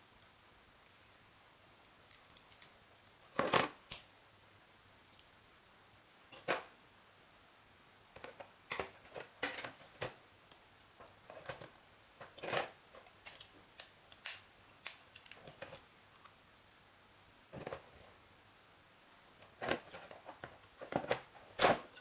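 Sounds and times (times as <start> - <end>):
plastic parts clicking: 11.3 - 15.9.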